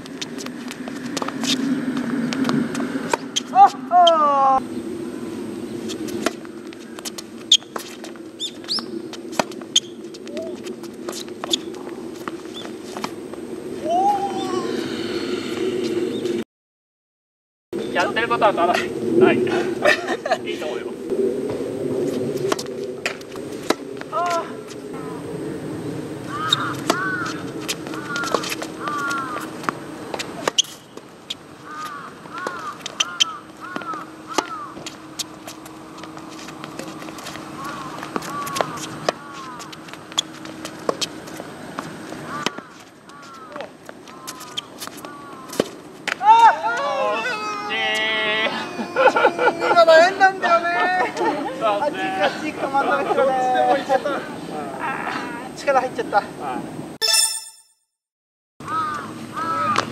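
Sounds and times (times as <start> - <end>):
steady low hum: 0.0 - 16.4, 17.8 - 46.2
tennis ball hits and bounces: 6.2 - 6.4, 22.5 - 24.3, 26.5 - 30.8, 33.7 - 42.8, 44.3 - 46.3
crows cawing: 26.3 - 29.5, 31.6 - 34.9, 37.5 - 39.8, 42.2 - 45.7, 58.6 - 59.9
short high chirps: 57.0 - 57.9.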